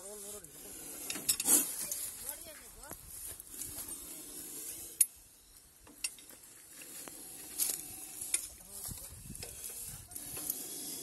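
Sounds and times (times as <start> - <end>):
metal hook scraping: 0.6 - 2.2, 5.9 - 11.0.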